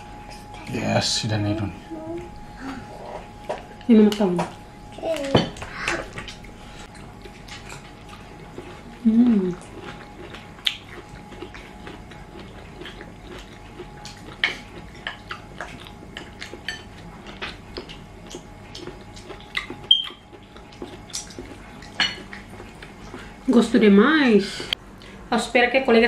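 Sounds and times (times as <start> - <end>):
chewing: 5.9 - 23.4.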